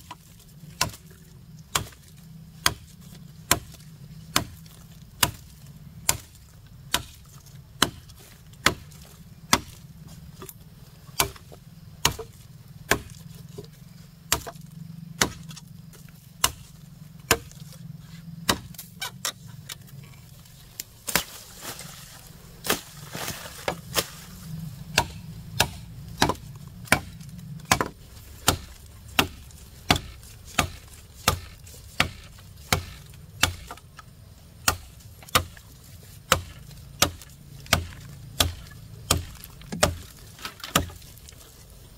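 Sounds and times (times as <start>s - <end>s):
blade chopping wood: 0.0s - 17.8s, 18.4s - 19.8s, 20.8s - 41.4s
rustling noise: 20.5s - 24.7s.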